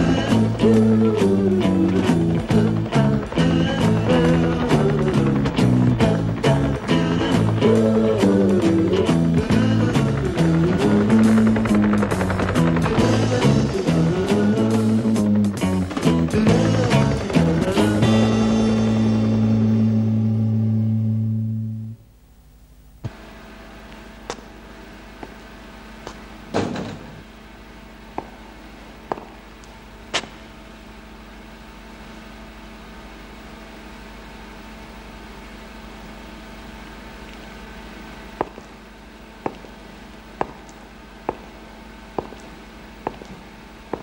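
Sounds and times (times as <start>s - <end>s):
music: 0.0s - 22.1s
electrical hum of machine room: 0.0s - 44.0s
footsteps on hard floor: 42.2s - 44.0s.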